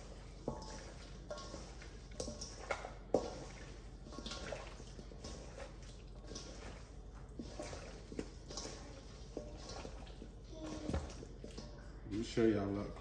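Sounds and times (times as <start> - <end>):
wet squishes and slaps of meat: 0.0 - 11.7.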